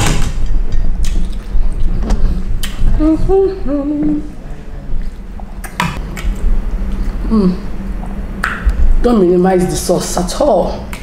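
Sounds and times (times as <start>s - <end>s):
low background hum: 0.0s - 11.0s
woman humming: 2.7s - 4.5s, 7.2s - 7.8s.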